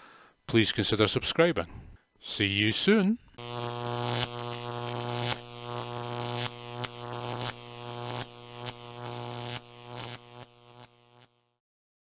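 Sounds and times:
low electronic buzzing drone: 1.9 - 11.6
glitchy clicks: 3.3 - 11.4.

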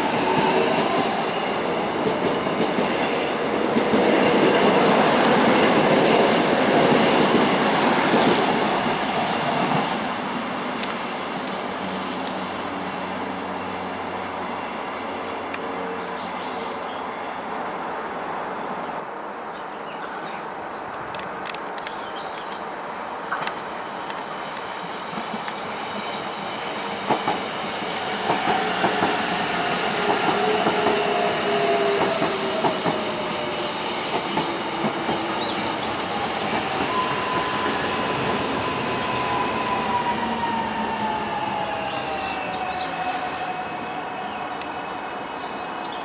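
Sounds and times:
electric train whining: 23.9 - 46.0.

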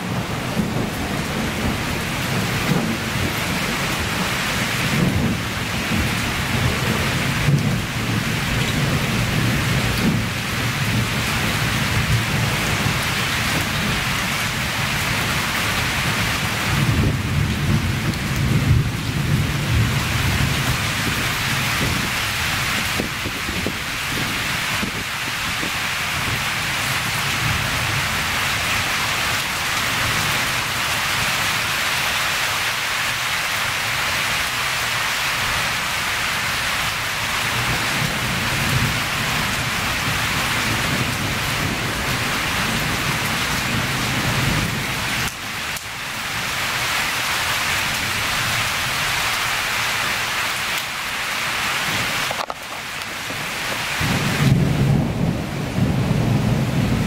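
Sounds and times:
low rumbles of thunder: 0.0 - 28.4, 37.4 - 45.3, 51.9 - 57.0
heavy rain falling: 0.0 - 57.0.

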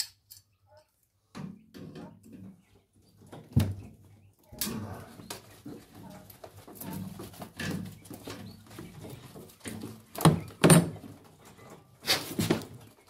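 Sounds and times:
pigeons cooing: 3.2 - 10.7.

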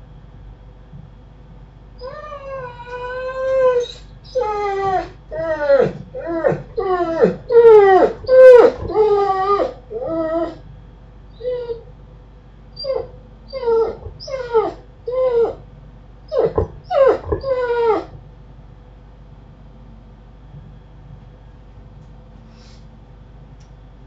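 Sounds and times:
dog whining: 2.0 - 10.6, 11.4 - 11.9, 12.8 - 15.6, 16.3 - 18.2.

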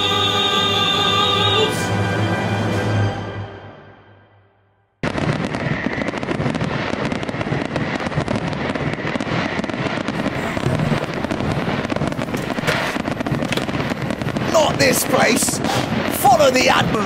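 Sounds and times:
fireworks crackling and popping: 5.0 - 17.0.

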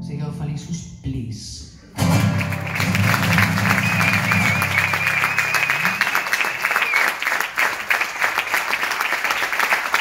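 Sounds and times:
audience applauding: 2.0 - 10.0
long wavering whistle: 3.6 - 7.2.

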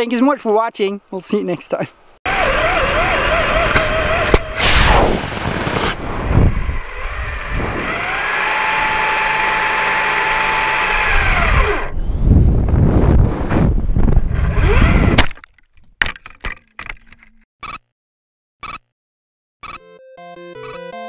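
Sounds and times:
electric motor whining: 2.3 - 12.2, 14.3 - 15.2
rushing noise: 3.2 - 9.0
sharp crack: 3.6 - 6.0
rocket firing roar: 3.7 - 6.7.

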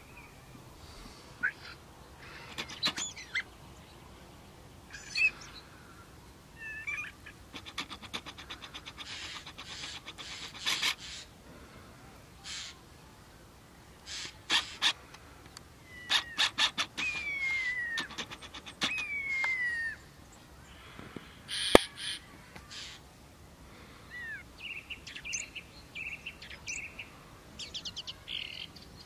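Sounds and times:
birds harsh calls: 0.0 - 3.6, 4.9 - 11.4, 12.4 - 12.8, 14.0 - 23.0
faint steady hiss: 0.0 - 29.0.

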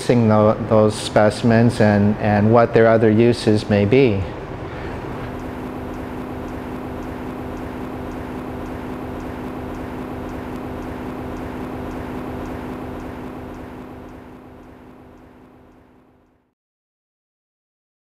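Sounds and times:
machinery humming: 4.4 - 16.3
faint high ticking: 5.2 - 15.9.

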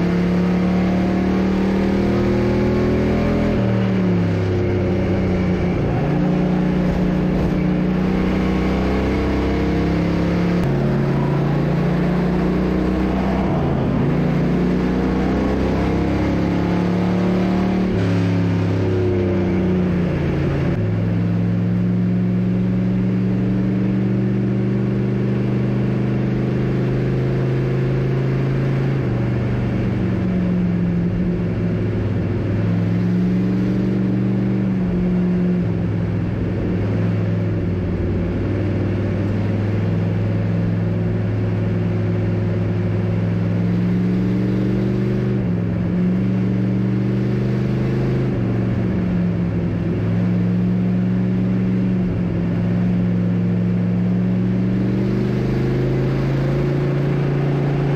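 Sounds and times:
race car engine from cockpit: 0.0 - 57.9.

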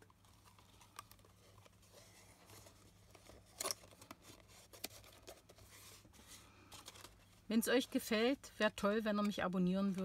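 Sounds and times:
paper crackle: 0.0 - 7.6.

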